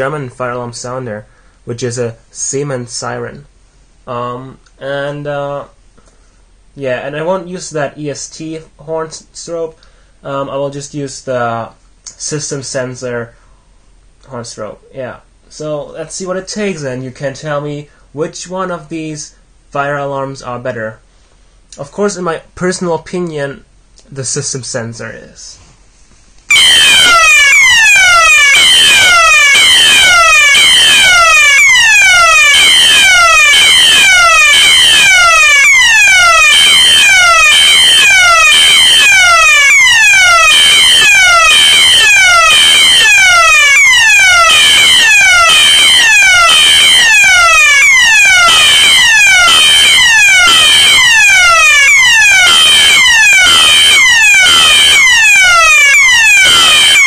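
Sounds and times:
fire alarm falling sweep tone: 0:26.5 - 0:57.0.

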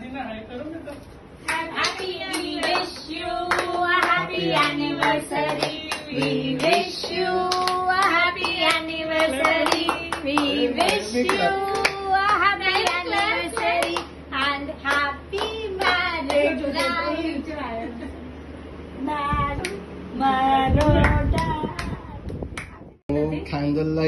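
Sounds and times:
voices singing together: 0:01.4 - 0:17.9, 0:19.0 - 0:22.2
hand-clapping: 0:01.5 - 0:14.1, 0:14.9 - 0:17.0.

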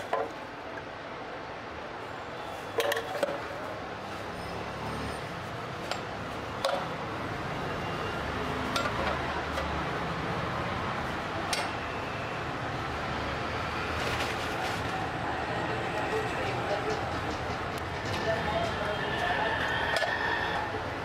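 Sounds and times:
busy food stall background: 0:00.0 - 0:21.0.

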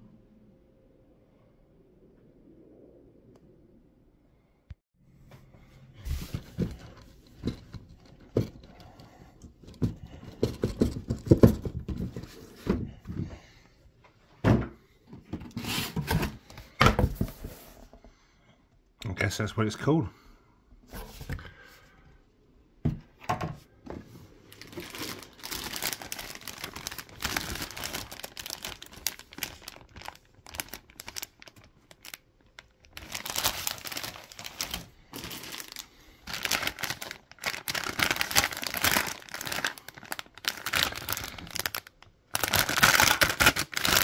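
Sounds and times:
plastic bags crinkling: 0:24.4 - 0:44.0.

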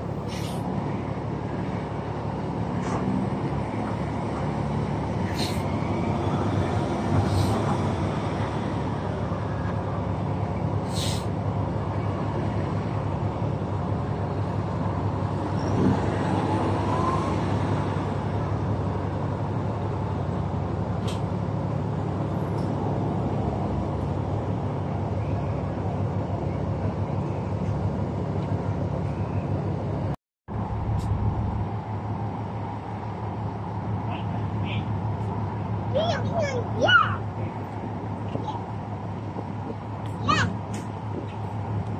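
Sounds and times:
diesel machinery droning: 0:00.0 - 0:41.9
short sharp hisses: 0:00.2 - 0:00.7, 0:05.3 - 0:05.7, 0:07.2 - 0:07.6, 0:10.8 - 0:11.3.

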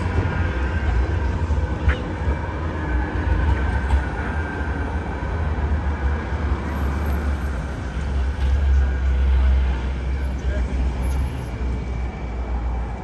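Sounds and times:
city traffic rumble: 0:00.0 - 0:13.0
tram running on track: 0:00.0 - 0:13.0.

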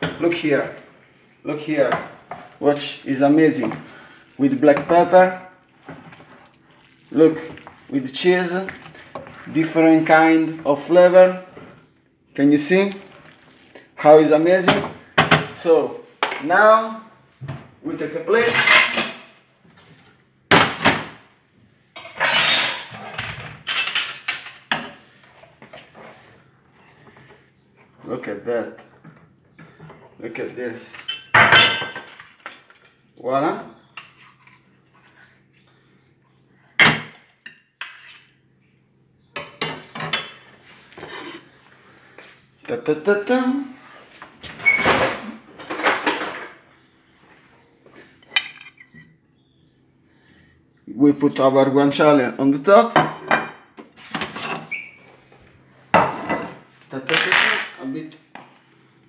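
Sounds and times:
dishes scraping and clattering: 0:18.4 - 0:19.3, 0:22.0 - 0:26.2, 0:30.9 - 0:33.0, 0:33.9 - 0:35.4, 0:36.8 - 0:38.4, 0:39.4 - 0:41.6, 0:48.0 - 0:49.2, 0:53.0 - 0:55.0, 0:55.9 - 0:57.8.

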